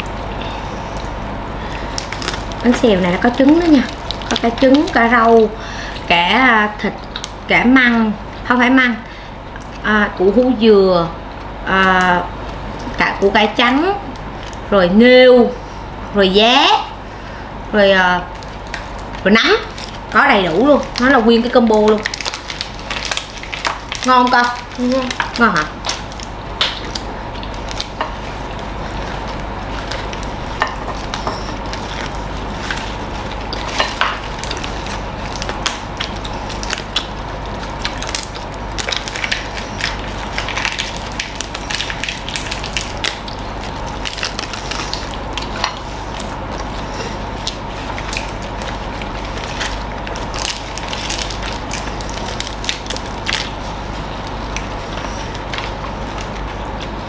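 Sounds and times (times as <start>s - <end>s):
crispy food crunched and chewed: 0.0s - 7.5s, 14.0s - 14.7s, 18.3s - 57.0s
steady low hum: 0.0s - 57.0s.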